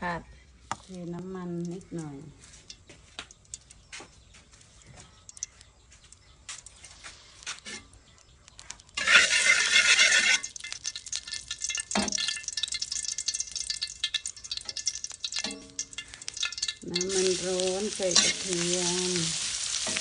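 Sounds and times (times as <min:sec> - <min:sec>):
metal ladle clicking on wok: 0:09.0 - 0:18.8
oil sizzling in hot pan: 0:09.0 - 0:20.0.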